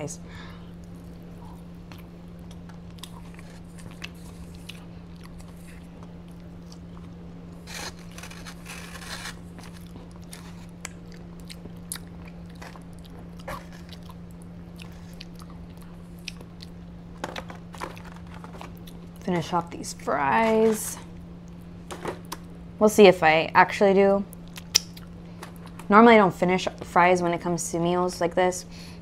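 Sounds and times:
steady low hum: 0.0s - 29.0s
chewing french fries: 0.7s - 19.2s, 24.3s - 25.7s
rustling crunch: 7.0s - 10.9s.

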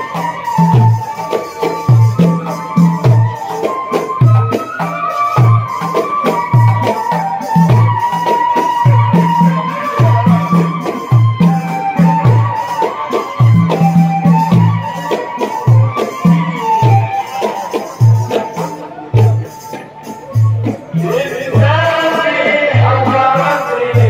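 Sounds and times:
rattling percussion: 0.0s - 24.0s
deep steady drum beat: 8.8s - 24.0s
men singing together: 21.0s - 24.0s.

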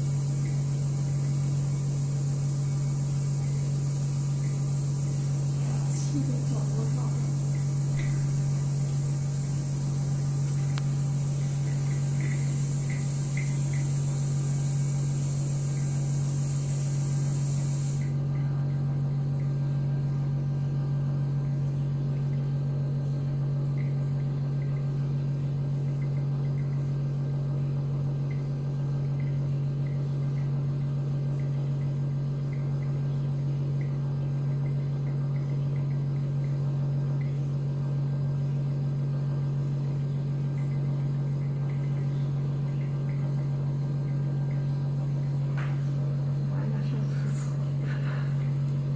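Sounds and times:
high hiss: 0.0s - 18.2s
low machine hum: 0.0s - 48.9s
faint ticks: 10.4s - 14.0s.

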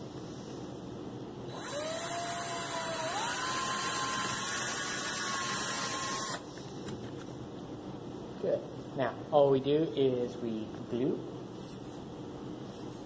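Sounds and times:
cordless drill whining: 1.5s - 6.4s.

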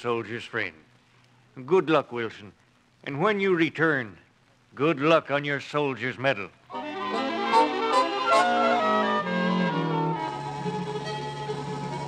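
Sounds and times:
orchestral bridge music: 6.7s - 12.0s.

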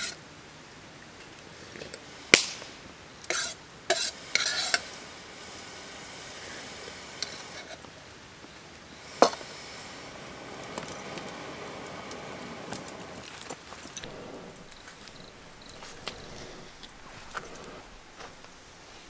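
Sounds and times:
oil sizzling: 0.9s - 19.0s
clatter and scraping: 10.5s - 19.0s.

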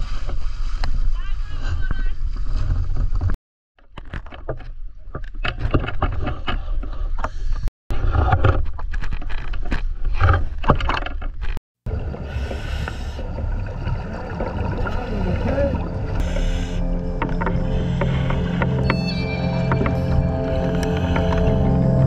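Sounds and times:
water splashing and sloshing: 0.0s - 7.0s, 7.9s - 22.0s
low rumble: 11.9s - 22.0s.

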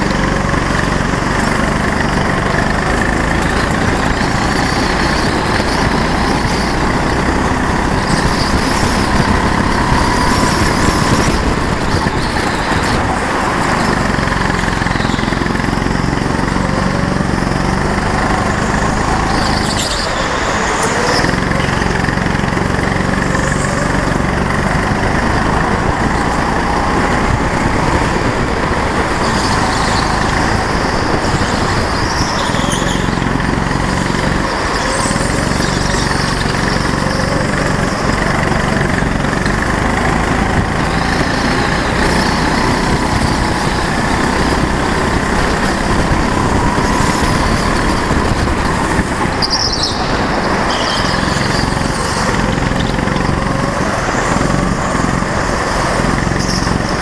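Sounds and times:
go-kart engine running: 0.0s - 57.0s.

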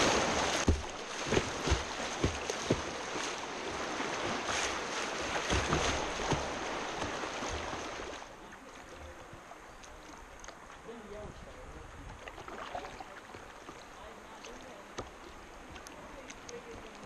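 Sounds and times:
low thuds: 0.0s - 3.0s
whitewater rushing and splashing: 0.0s - 10.2s
moving water: 0.0s - 17.0s.

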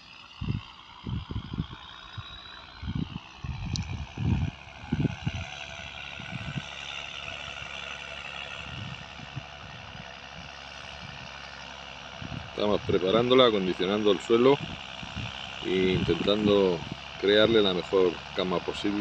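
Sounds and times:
distant tractor engine drone: 0.0s - 19.0s
wind buffeting microphone: 0.4s - 6.8s, 8.5s - 11.4s, 12.0s - 17.6s.

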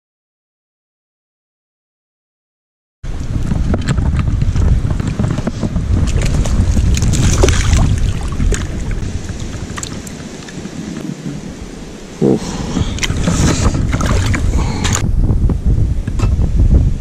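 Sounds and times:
wind buffeting microphone: 3.0s - 17.0s
small water splashes: 6.0s - 11.0s, 12.8s - 15.0s.

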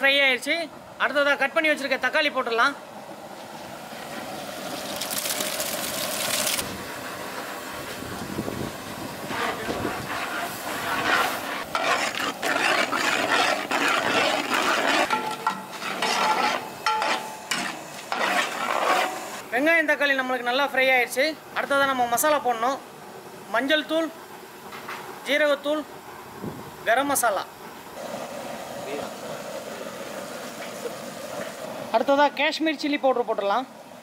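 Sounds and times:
ladle scraping and knocking pot: 10.2s - 19.3s
food sizzling in a pot: 10.2s - 19.4s.

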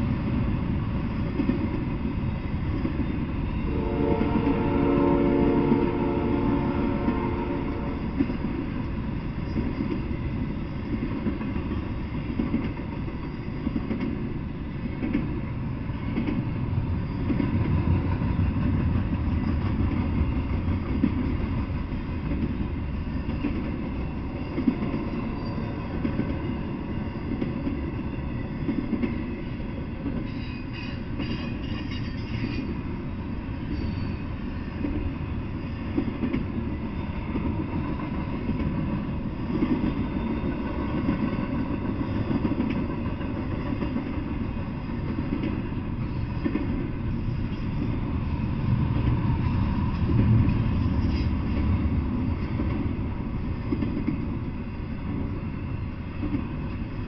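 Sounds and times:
steel wheels rumbling on rail: 0.0s - 57.0s
faint high-pitched squeal: 25.2s - 25.9s, 33.6s - 34.7s.

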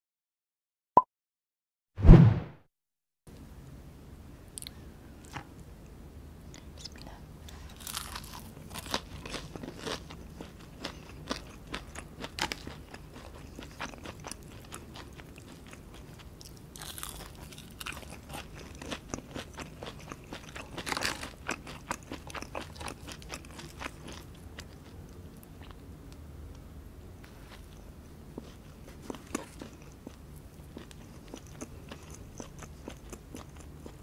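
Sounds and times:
crunchy food chewing: 7.6s - 25.8s, 27.2s - 34.0s.

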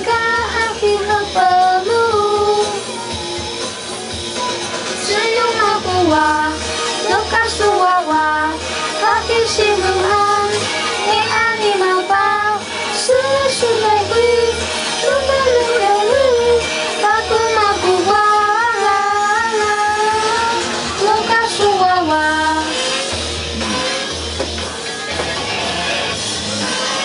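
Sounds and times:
girls singing together: 0.0s - 2.8s, 5.0s - 23.0s
backing track with low bass: 0.0s - 27.0s.

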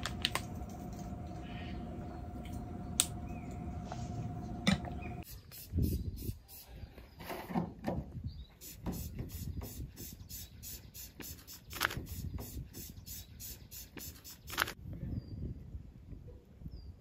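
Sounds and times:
low rumbling handling noise: 0.0s - 5.2s
faint bird chirping: 1.1s - 7.3s.

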